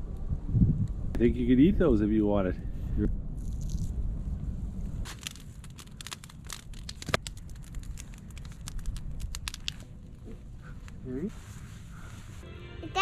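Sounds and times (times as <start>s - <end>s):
campfire crackling and popping: 5.0s - 10.0s.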